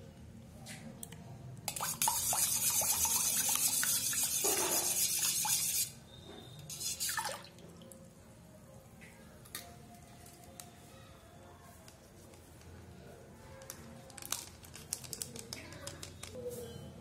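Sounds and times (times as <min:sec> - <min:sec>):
liquid sloshing in a bowl: 0:01.7 - 0:06.0, 0:06.7 - 0:08.0.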